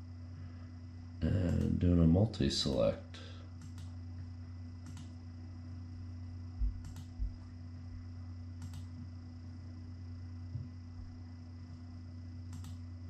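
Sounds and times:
low hum: 0.0 - 13.0
computer mouse clicks: 3.6 - 4.0, 4.8 - 5.2, 6.8 - 7.2, 8.6 - 9.1, 12.5 - 12.8
soft low thumps: 6.5 - 8.1, 10.5 - 11.2.

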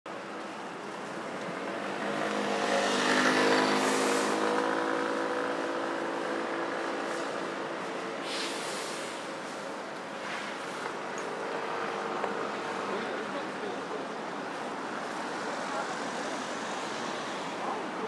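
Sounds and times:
road traffic hum: 0.1 - 18.0
vehicle passing close by: 1.6 - 7.7.

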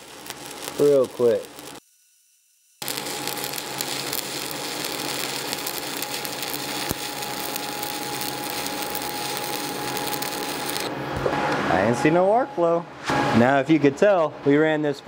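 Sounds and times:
welding arc crackling and sizzling: 0.0 - 10.9.

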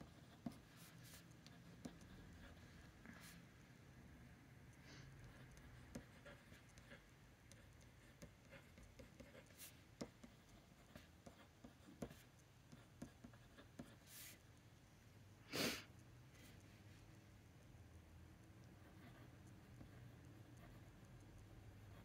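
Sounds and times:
pen nib scratching on paper: 0.0 - 3.4, 5.2 - 14.5, 18.4 - 22.0.

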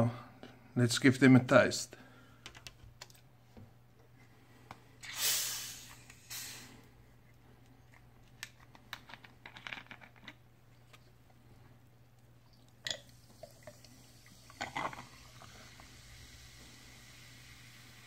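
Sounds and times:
carbonation hissing out: 5.0 - 7.0, 12.9 - 18.0.

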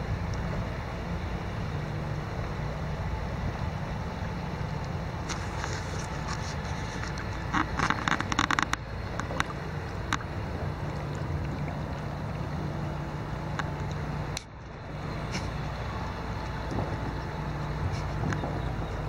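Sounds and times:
river water over gravel: 0.0 - 19.0
sharp clicks and knocks: 5.3 - 10.3.

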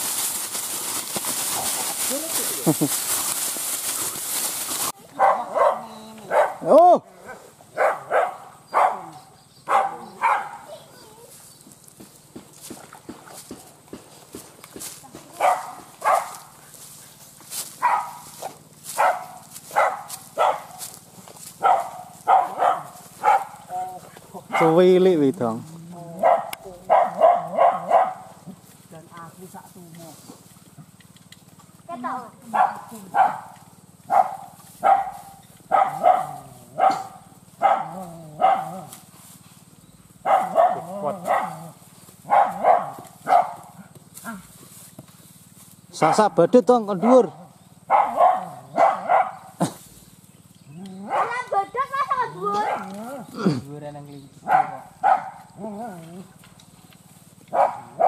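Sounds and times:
dogs barking: 5.0 - 11.1, 15.3 - 25.2, 26.0 - 28.5, 32.4 - 39.1, 40.1 - 44.4, 46.0 - 49.8, 50.7 - 53.3, 54.4 - 56.3, 57.4 - 58.0.

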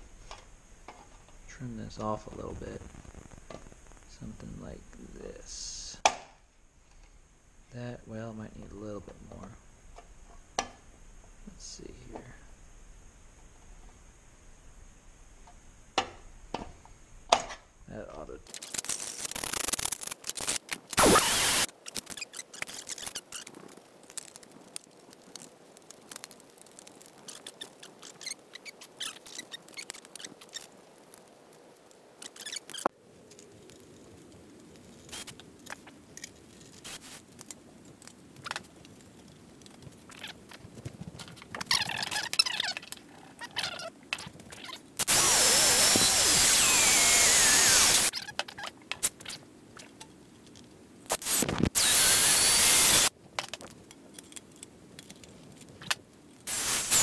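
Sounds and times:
cordless screwdriver whining: 45.0 - 48.1, 51.3 - 53.1, 56.5 - 57.0.

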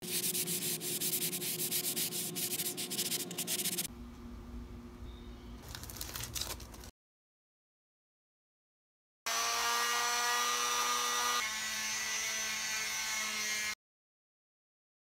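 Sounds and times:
scratchy rubbing: 0.0 - 3.9.

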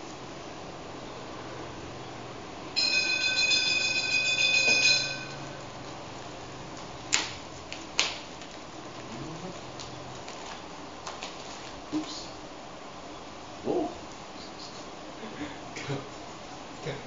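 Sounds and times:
motorbike bell ringing: 2.8 - 5.8.

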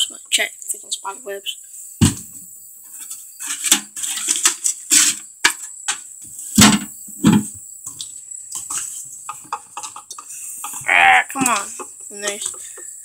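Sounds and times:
objects knocking on wooden boards: 2.0 - 2.3, 6.6 - 8.0, 8.6 - 12.8
heavy thumps: 2.0 - 2.4.

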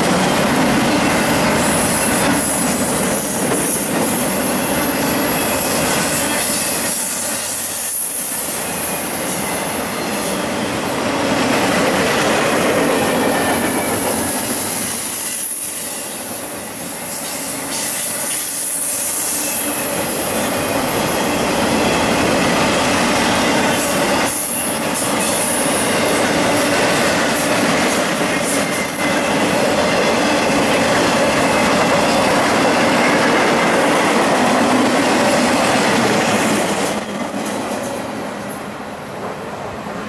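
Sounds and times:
train wheels rolling on rails: 0.0 - 40.0
thin wheel squeal: 13.8 - 20.0.

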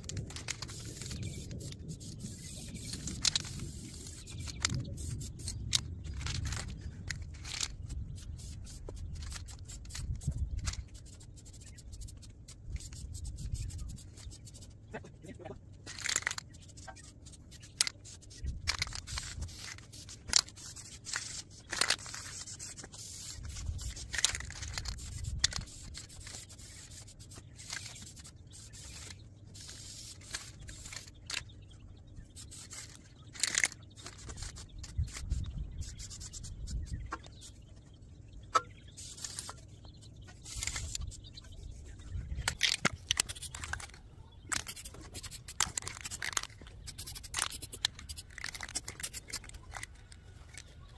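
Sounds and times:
clicks and scrapes: 0.0 - 14.6, 15.8 - 31.5, 32.4 - 37.4, 38.5 - 50.7
wind rumbling on microphone: 0.0 - 14.6, 18.2 - 26.8, 33.9 - 49.9
spray paint can hissing: 0.0 - 14.8, 15.9 - 31.4, 32.3 - 37.5, 38.9 - 39.5, 40.4 - 41.3, 42.4 - 49.9.

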